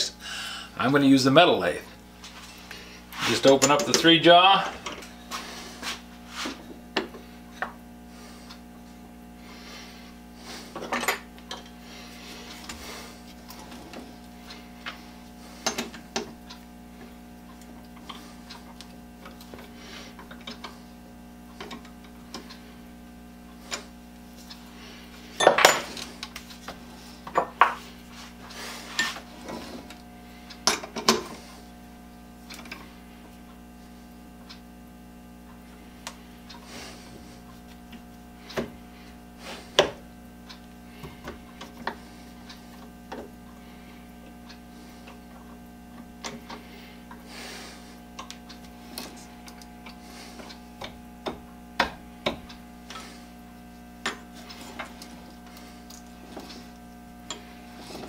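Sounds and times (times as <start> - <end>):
steady hum: 0.0 - 58.0.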